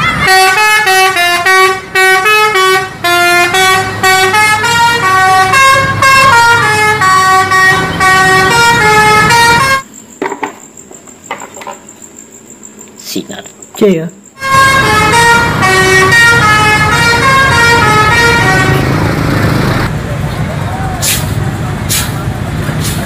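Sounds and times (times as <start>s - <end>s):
multi-tone bus horn tune: 0.0s - 9.9s, 14.4s - 19.9s.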